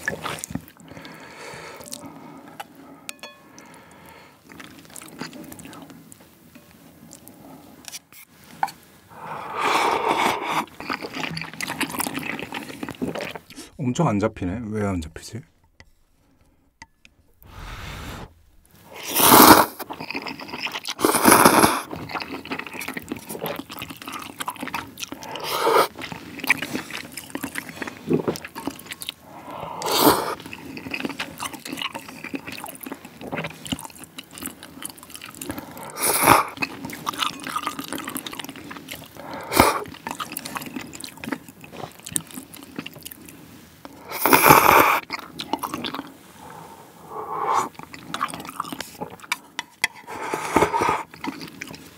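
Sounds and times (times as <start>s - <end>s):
loud slurping noodles: 9.1s - 13.4s, 17.4s - 22.8s, 25.2s - 26.9s, 29.2s - 30.9s, 35.4s - 37.2s, 39.0s - 40.0s, 44.0s - 45.1s, 46.3s - 49.0s, 50.0s - 51.5s
wet chewing: 9.4s - 13.7s, 18.4s - 51.9s.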